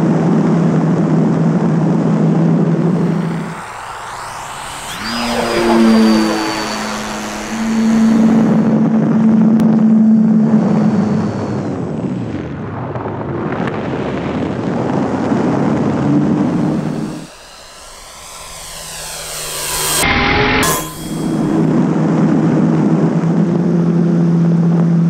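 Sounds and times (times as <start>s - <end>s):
high electric motor whine: 0.0s - 25.0s
propeller hum: 0.9s - 13.8s, 14.5s - 25.0s
air rushing: 2.7s - 11.9s, 15.9s - 21.8s.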